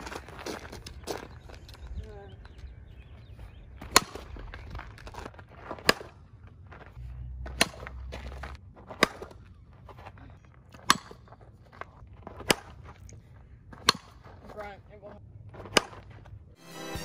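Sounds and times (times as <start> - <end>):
bat cracking on softball: 8.9 - 9.5, 12.4 - 12.8, 13.8 - 14.2.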